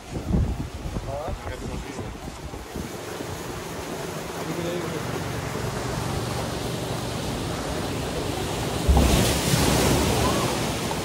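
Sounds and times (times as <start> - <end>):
wind buffeting microphone: 0.0 - 4.1
sea surf: 0.0 - 11.0.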